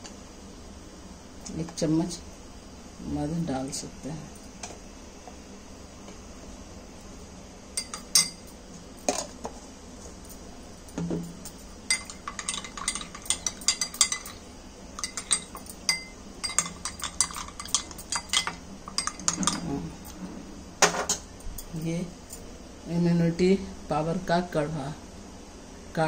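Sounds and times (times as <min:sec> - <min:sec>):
spoon clinking against glass: 0:07.8 - 0:09.1, 0:10.9 - 0:19.8.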